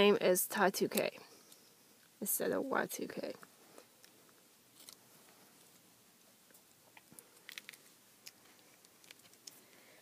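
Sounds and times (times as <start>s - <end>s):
soft handling clicks and rustles: 3.4s - 9.8s.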